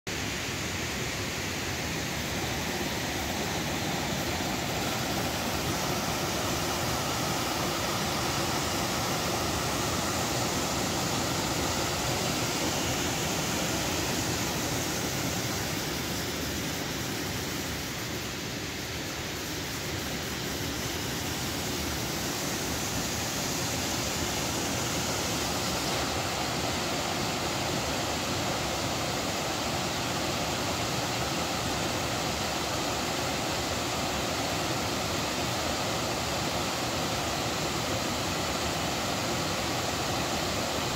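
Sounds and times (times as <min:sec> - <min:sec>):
waterfall rushing: 0:00.1 - 0:40.9.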